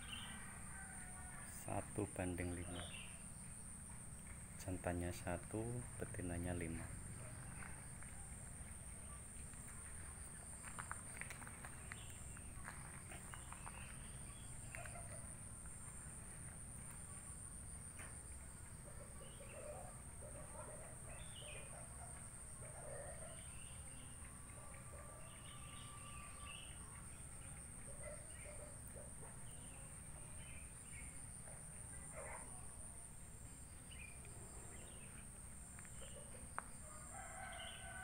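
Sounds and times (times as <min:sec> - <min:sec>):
bird calls: 0:18.9 - 0:21.9.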